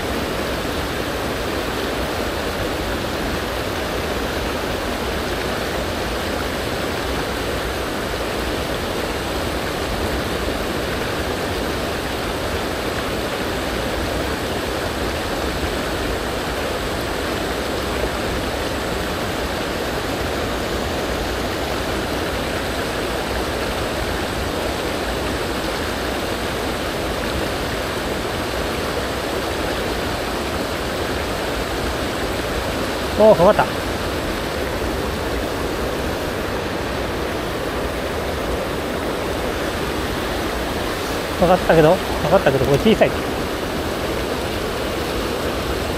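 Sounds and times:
river rushing over stones: 0:00.0 - 0:45.9.

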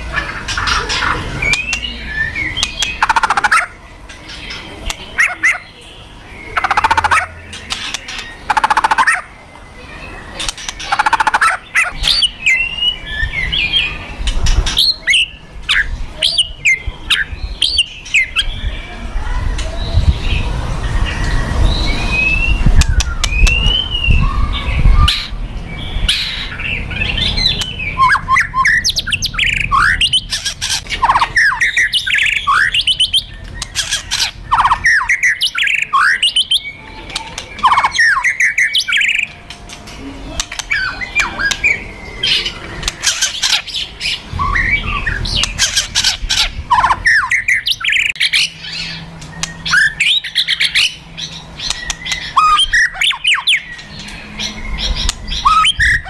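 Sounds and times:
bird fighting calls: 0:02.6 - 0:05.7, 0:06.5 - 0:09.4, 0:10.3 - 0:12.6, 0:27.4 - 0:56.0.

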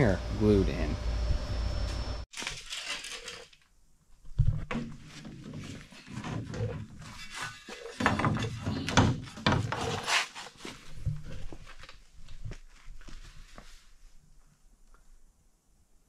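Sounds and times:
wood knocking and scraping: 0:04.3 - 0:10.2.

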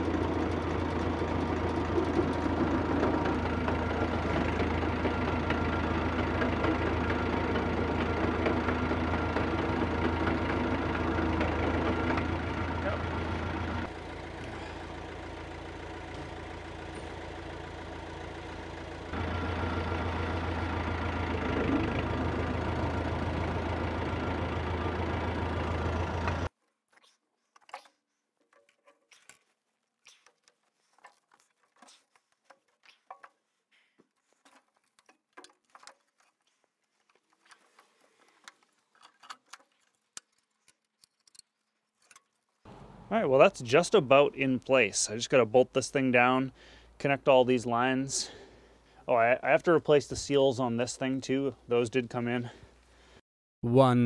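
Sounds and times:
tractor engine idling: 0:00.0 - 0:26.5, 0:42.7 - 0:52.6.

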